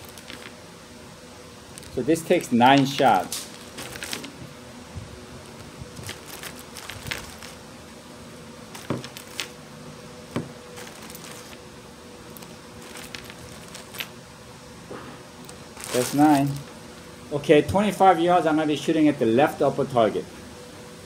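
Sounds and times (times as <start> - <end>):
plastic bag rustling: 0.0 - 0.6, 1.7 - 4.5, 5.5 - 7.6, 8.7 - 9.6, 10.3 - 11.6, 12.3 - 14.1, 15.5 - 16.7.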